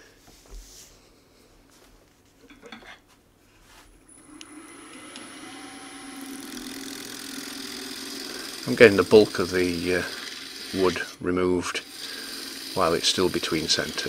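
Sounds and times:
lathe motor whine: 4.1s - 14.0s.

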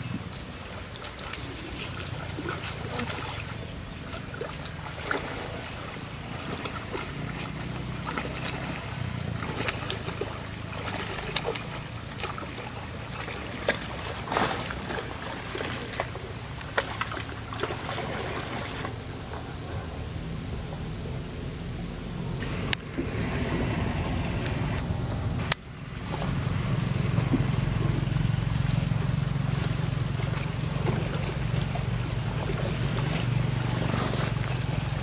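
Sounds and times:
steady low rumble: 0.0s - 35.0s
water sloshing and splashing: 0.0s - 35.0s.

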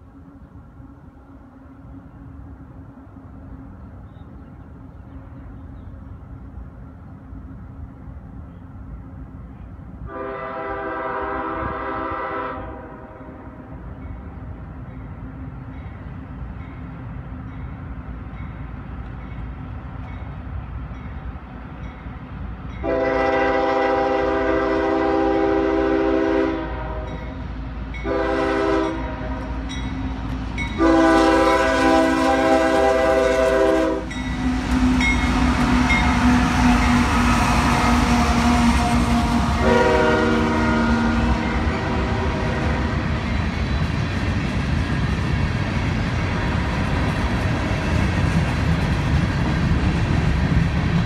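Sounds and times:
train wheels rumbling on rail: 0.0s - 51.0s
locomotive air horn: 10.1s - 13.7s, 22.8s - 27.3s, 28.0s - 29.6s, 30.8s - 43.1s.

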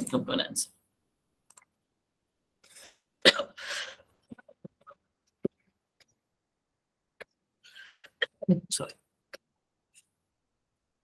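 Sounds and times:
person coughing: 3.2s - 4.0s.

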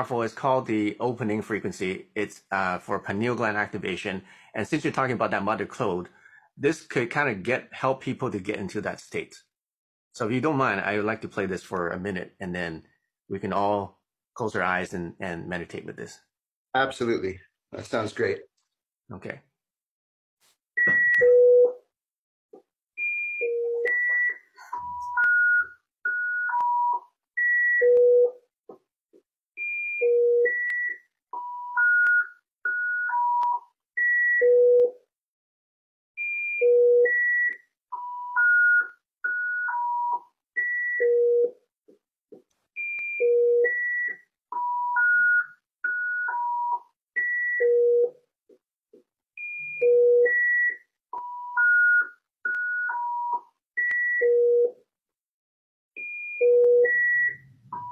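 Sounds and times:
pure electronic beep tones: 20.8s - 21.8s, 23.0s - 28.4s, 49.4s - 54.4s, 56.0s - 57.9s.

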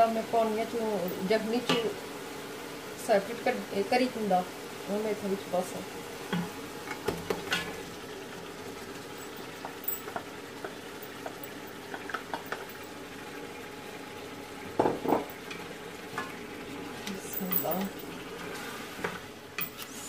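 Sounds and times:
meat frying in hot oil: 0.0s - 20.0s.

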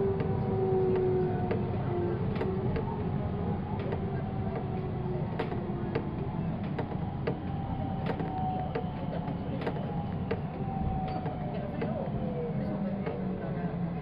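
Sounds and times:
train wheels rumbling on rails: 0.0s - 14.0s
clicks and ticks from wheels: 3.7s - 12.1s.

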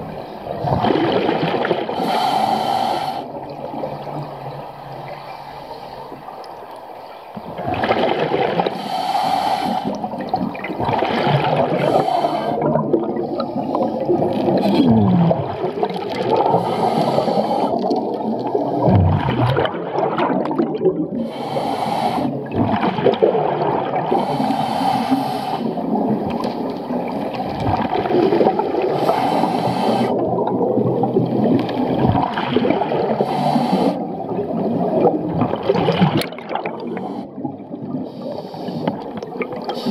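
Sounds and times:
exhaled bubbles rushing: 0.0s - 2.0s, 7.4s - 8.8s, 10.0s - 17.1s, 17.7s - 21.3s, 22.3s - 24.3s, 25.7s - 33.3s, 34.0s - 38.3s, 38.9s - 39.9s
underwater gurgling: 0.0s - 39.9s.

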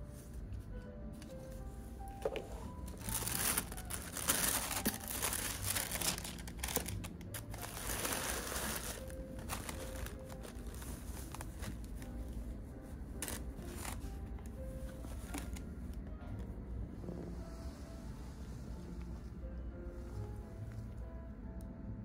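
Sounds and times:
fabric bag rustling: 2.2s - 12.1s, 13.2s - 14.1s
tissue paper crinkling: 2.2s - 12.2s, 13.2s - 14.1s.

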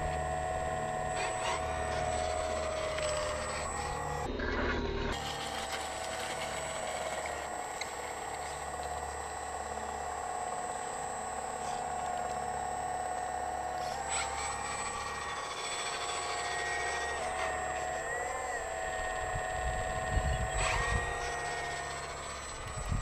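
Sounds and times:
hydraulic pump whining: 0.0s - 23.0s
wind buffeting microphone: 19.0s - 21.2s, 22.6s - 23.0s.

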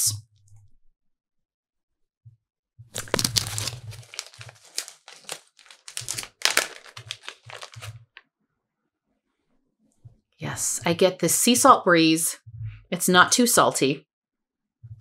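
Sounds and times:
plastic bag crinkling: 2.9s - 8.2s.

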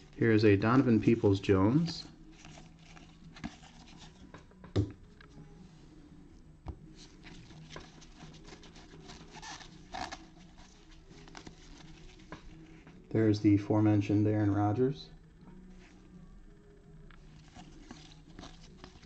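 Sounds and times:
trading cards rubbing and ticking: 7.0s - 13.0s, 17.1s - 19.0s.

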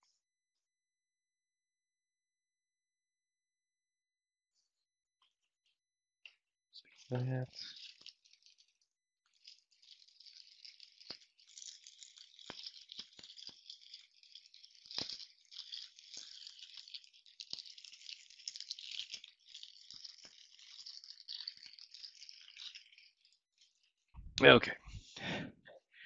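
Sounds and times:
small parts rattling and rustling: 6.8s - 23.9s.

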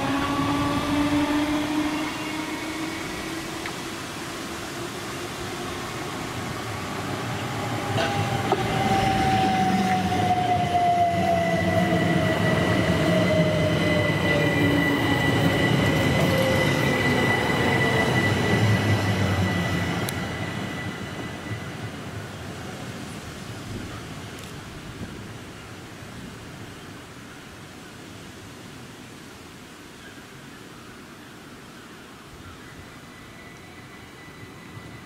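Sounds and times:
electric train passing: 0.0s - 23.5s, 32.9s - 35.0s.

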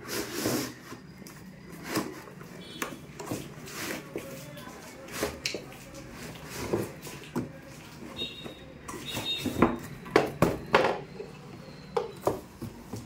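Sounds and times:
cardboard rubbing and scraping: 0.0s - 1.1s.

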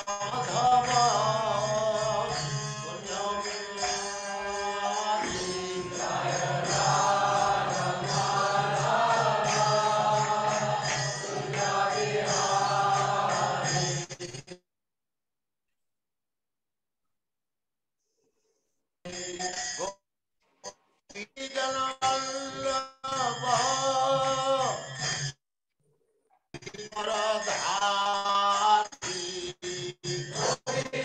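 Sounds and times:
person chanting: 0.2s - 14.0s.

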